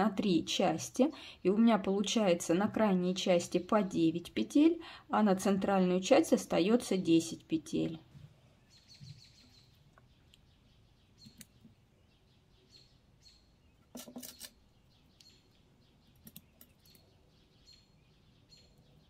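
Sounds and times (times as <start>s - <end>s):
knitting needles clicking: 11.2s - 11.6s, 16.1s - 17.0s.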